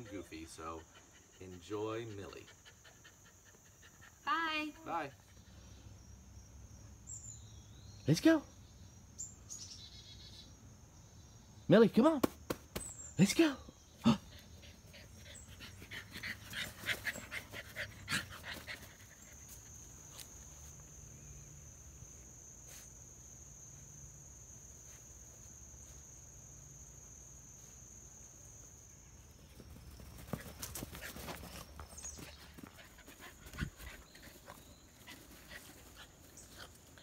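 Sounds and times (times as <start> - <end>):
dog panting: 0.0 - 4.3, 14.3 - 19.7, 30.2 - 37.0
paws patting on turf: 29.5 - 37.0.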